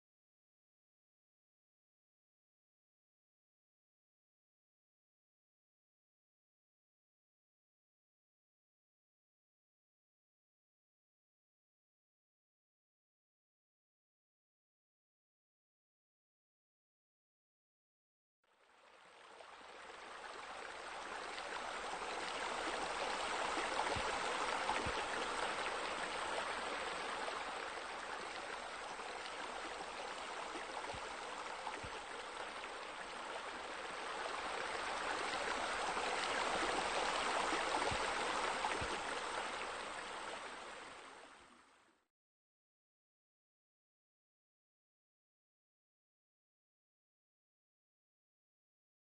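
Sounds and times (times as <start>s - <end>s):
water splashing and rushing: 20.1s - 41.1s.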